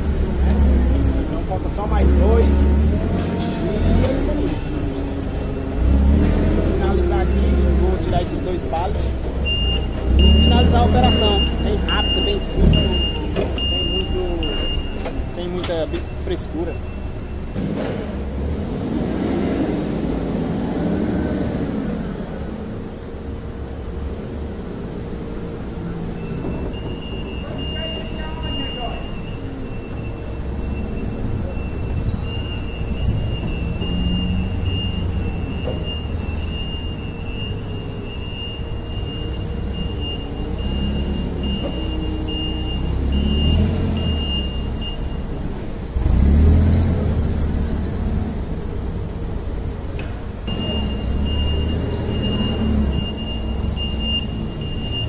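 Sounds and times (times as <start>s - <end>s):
forklift engine rumble: 0.0s - 55.0s
high-pitched warning beeper: 9.5s - 17.6s, 26.1s - 45.3s, 50.5s - 55.0s.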